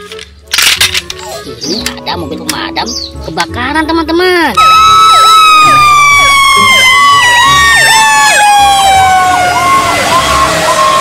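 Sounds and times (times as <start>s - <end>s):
long falling siren tone: 4.6s - 11.0s
yelping siren: 4.6s - 11.0s.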